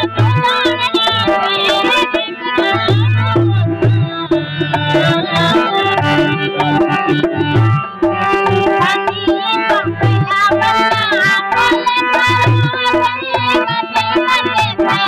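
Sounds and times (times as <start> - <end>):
hand drum rhythm: 0.0 - 15.0
folk song melody: 0.8 - 15.0.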